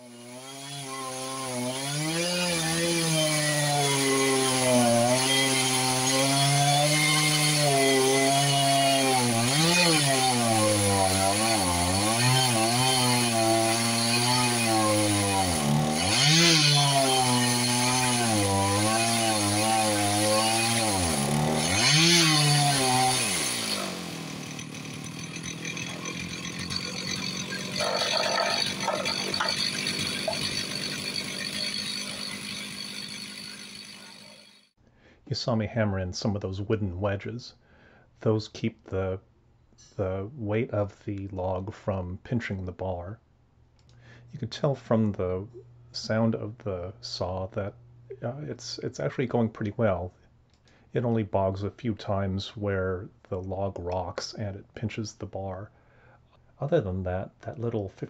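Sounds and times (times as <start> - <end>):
chainsaw ripping log: 0.0 - 34.6.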